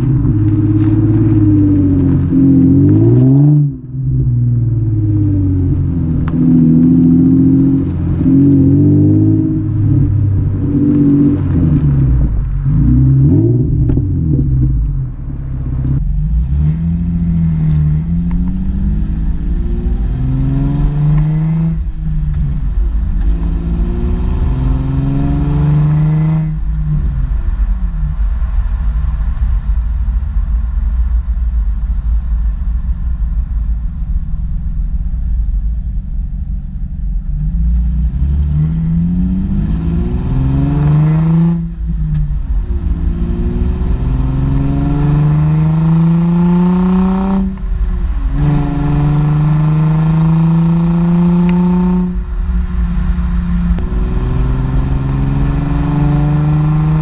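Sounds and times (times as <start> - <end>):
car accelerating through gears: 0.0 - 22.6, 23.2 - 27.2, 37.4 - 52.4, 53.1 - 57.0
car exhaust revving: 0.0 - 57.0.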